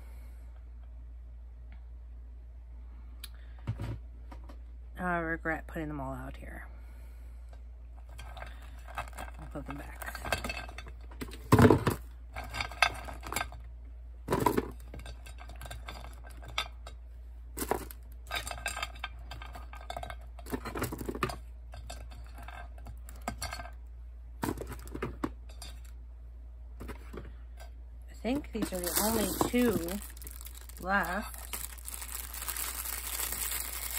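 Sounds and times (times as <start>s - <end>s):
plastic dolls clattering on metal tray: 8.1s - 13.6s, 14.2s - 16.9s, 17.6s - 23.8s, 24.4s - 25.9s, 28.1s - 33.9s.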